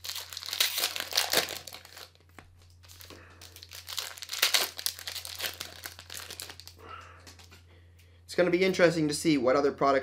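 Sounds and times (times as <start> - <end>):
foil wrapper tearing and crinkling: 0.0 - 6.8.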